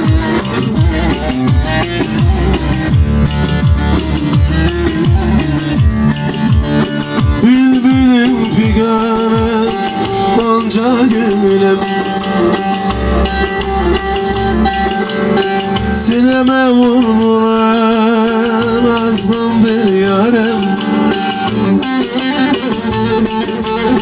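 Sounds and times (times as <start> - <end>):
amplified long-necked lute: 0.0 - 24.0
electronic keyboard: 0.0 - 24.0
person singing: 7.2 - 24.0.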